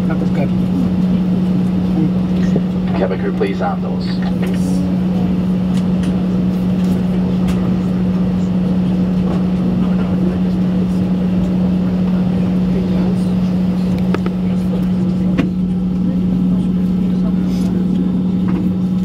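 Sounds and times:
low cabin hum: 0.0s - 19.0s.

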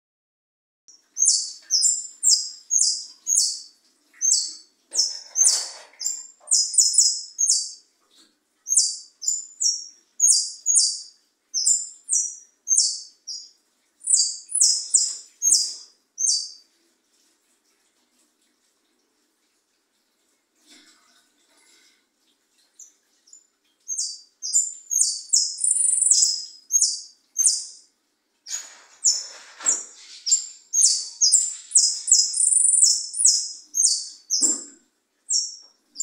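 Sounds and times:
bird singing sharp high notes: 23.9s - 27.8s, 30.2s - 34.0s.

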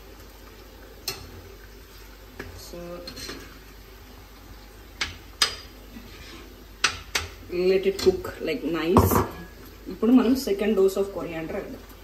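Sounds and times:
metal spoon scraping frying pan: 5.4s - 7.2s.

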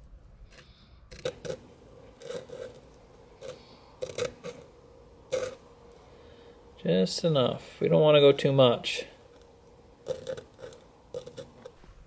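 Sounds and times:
sandpaper scraping metal: 0.5s - 4.7s.

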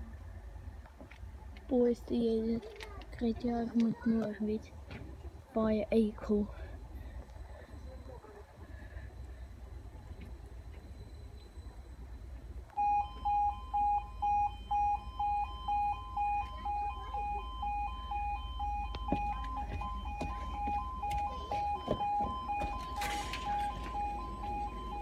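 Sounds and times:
electronic two-tone beeping: 12.8s - 25.0s.

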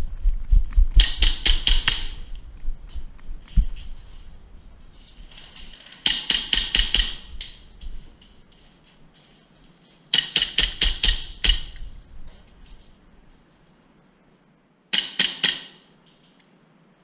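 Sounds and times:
airsoft gun shots: 1.0s - 2.3s, 14.9s - 15.9s.

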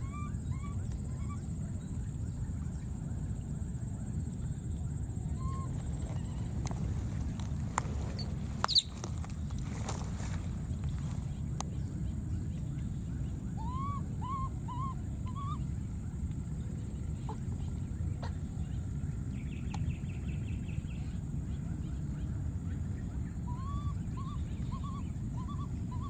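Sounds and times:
baby monkey coo calls: 0.0s - 1.5s, 5.3s - 9.1s, 13.5s - 15.8s, 17.2s - 18.7s, 23.3s - 26.0s
low rumble: 0.8s - 22.3s.

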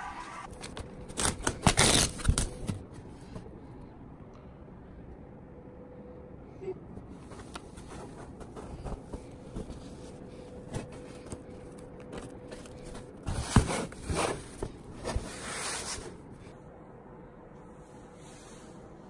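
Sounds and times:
adhesive tape rubbed flat: 1.1s - 2.3s.

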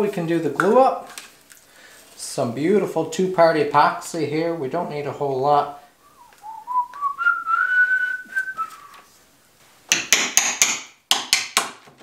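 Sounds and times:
person whistling: 6.0s - 9.1s
sharp hammer taps: 9.9s - 11.8s.

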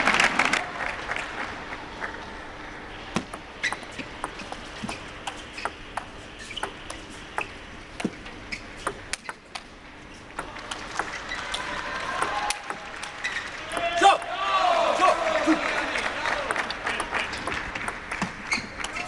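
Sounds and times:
quiet hall noise: 0.0s - 19.0s
table tennis ball clicking: 8.8s - 9.7s, 10.3s - 14.3s, 16.4s - 19.0s.

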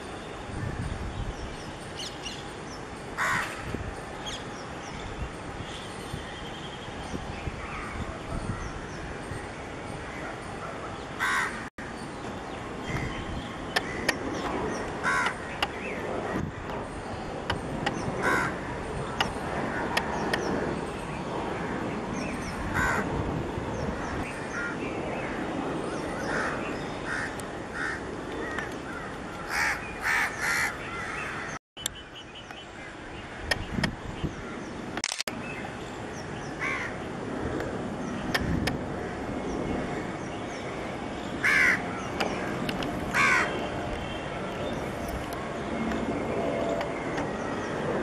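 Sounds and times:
crows cawing: 3.2s - 3.6s, 11.2s - 11.7s, 15.0s - 15.5s, 18.2s - 18.8s, 22.7s - 23.1s, 26.3s - 31.6s, 36.6s - 37.0s, 41.4s - 41.8s, 43.1s - 43.6s.

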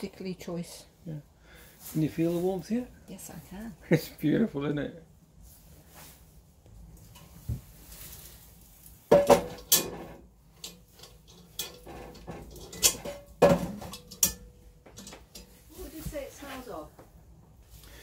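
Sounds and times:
iron pot clanking on metal: 9.1s - 15.6s
wire handle clinking: 9.1s - 15.6s.

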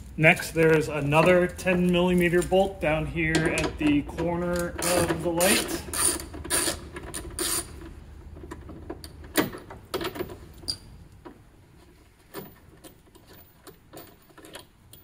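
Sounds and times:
socket ratchet clicking: 4.4s - 7.9s.

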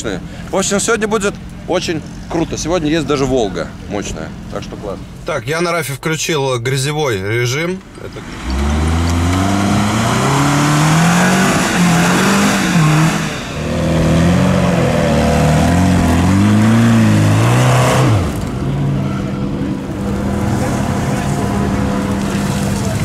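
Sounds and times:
car engine revving hard: 8.2s - 23.0s.

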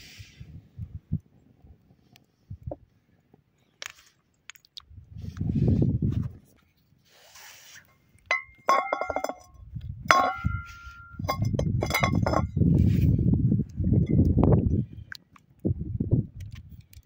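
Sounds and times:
frying pan clanking on rocks: 8.3s - 12.5s.

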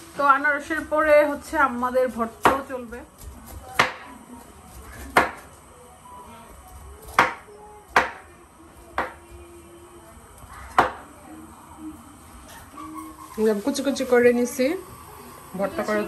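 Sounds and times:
knife striking chopping board: 10.8s - 11.0s.

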